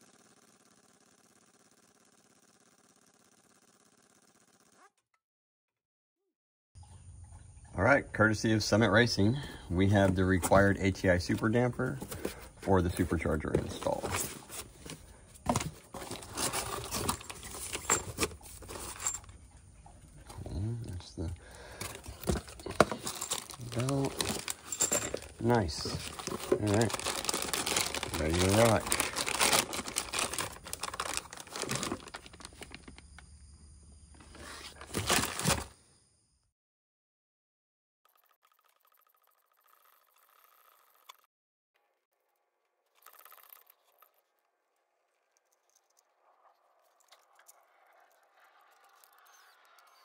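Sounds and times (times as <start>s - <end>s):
plastic and cardboard rustling: 9.9s - 19.4s, 21.6s - 33.0s, 34.2s - 35.7s
plastic bag crinkling: 13.7s - 19.2s, 21.6s - 33.2s.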